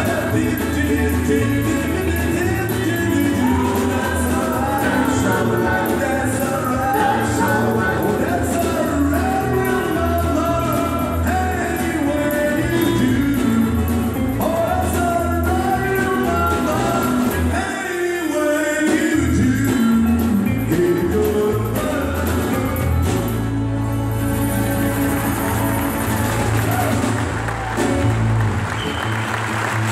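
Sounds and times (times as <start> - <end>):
low bass line: 0.0 - 17.6, 19.2 - 28.8
lead vocal singing: 0.0 - 22.8
strummed acoustic guitars: 0.0 - 29.9.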